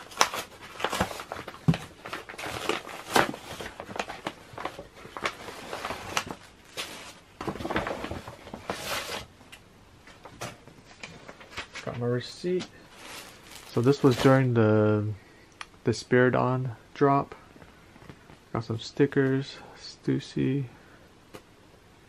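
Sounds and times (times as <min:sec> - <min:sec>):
paper bag rustling: 0:00.0 - 0:09.3, 0:12.8 - 0:14.6.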